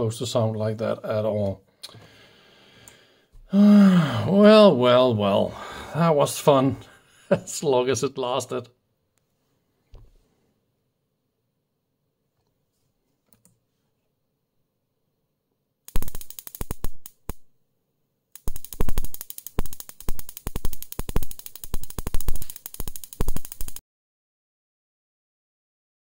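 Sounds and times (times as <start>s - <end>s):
electric arcing cracks: 15.9s - 17.4s, 18.4s - 23.8s.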